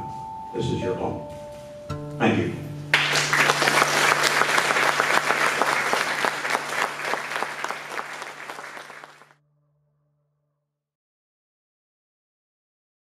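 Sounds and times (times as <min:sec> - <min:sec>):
audience applauding: 0:02.9 - 0:09.3.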